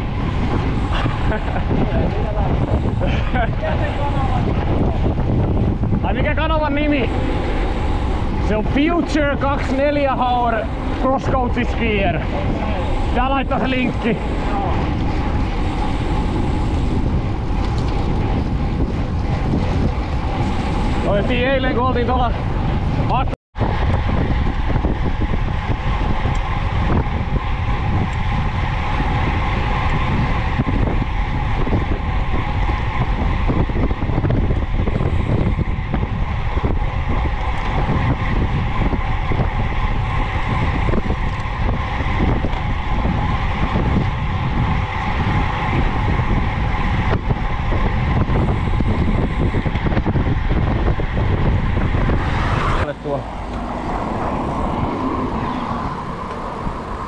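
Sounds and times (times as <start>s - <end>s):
bike tyres humming on asphalt: 0.0s - 57.0s
wind rushing on microphone: 0.0s - 57.0s.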